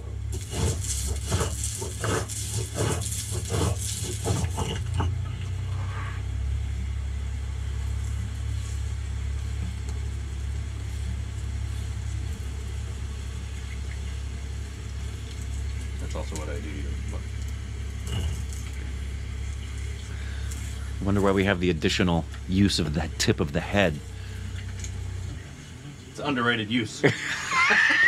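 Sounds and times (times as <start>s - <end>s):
steady low hum: 0.0s - 28.0s
stone roller scraping on stone: 0.3s - 6.2s.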